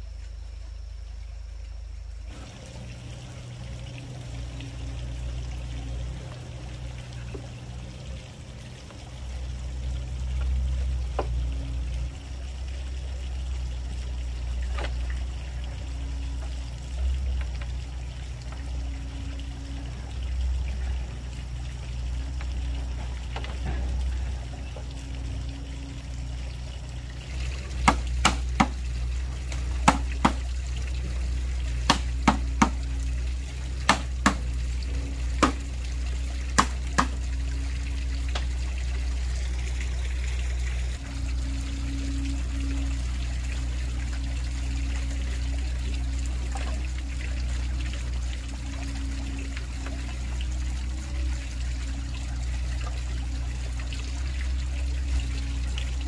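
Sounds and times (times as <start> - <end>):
stream trickling: 0.0 - 56.0
tool knocking on bamboo: 27.8 - 28.8, 29.5 - 30.5, 31.9 - 32.8, 33.8 - 34.5, 35.4 - 35.6, 36.6 - 37.2.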